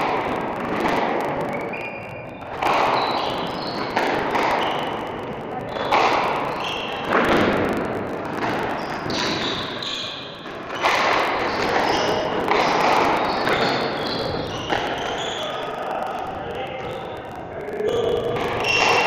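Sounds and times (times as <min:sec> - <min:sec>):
squash balls thudding against walls: 0:02.4 - 0:05.0, 0:08.4 - 0:09.8, 0:10.4 - 0:15.0.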